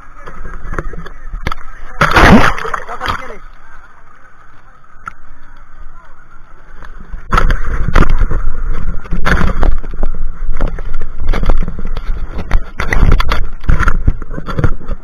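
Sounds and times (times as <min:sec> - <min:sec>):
seawater splashing: 0:00.0 - 0:15.0
camera bumping and rubbing: 0:07.3 - 0:15.0.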